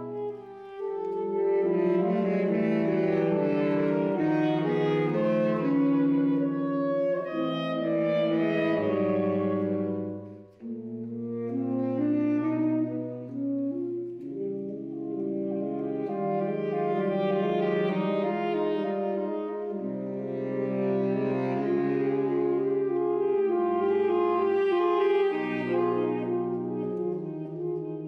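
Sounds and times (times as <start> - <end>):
saxophone quartet playing chords: 0.0 - 28.0.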